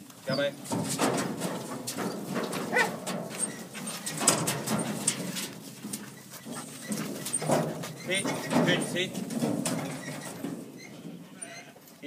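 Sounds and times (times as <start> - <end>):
sheep clattering against steel panels: 0.0 - 12.0
dog barking: 2.7 - 3.0.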